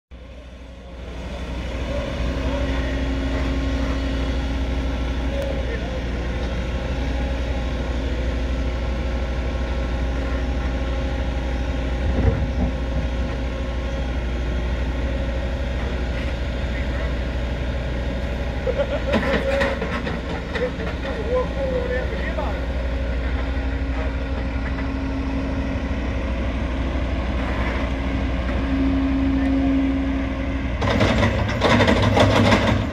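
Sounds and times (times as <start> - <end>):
excavator diesel engine running: 0.1 - 32.9
loud rattling noise: 30.8 - 32.9.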